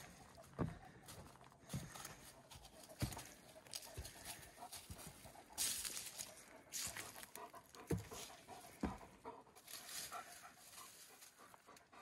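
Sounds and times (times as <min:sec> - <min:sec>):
footsteps on wooden stairs: 0:00.0 - 0:09.3
dry leaves rustling: 0:02.7 - 0:07.4, 0:09.6 - 0:11.5.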